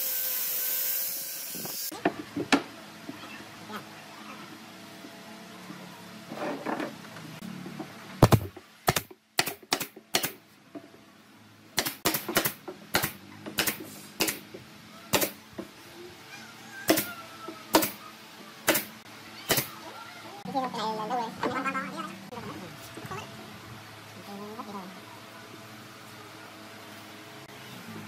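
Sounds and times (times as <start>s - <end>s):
nail gun firing into wood: 8.2s - 10.4s, 11.8s - 14.4s, 15.1s - 15.4s, 17.7s - 18.0s, 18.7s - 18.9s, 19.5s - 19.7s.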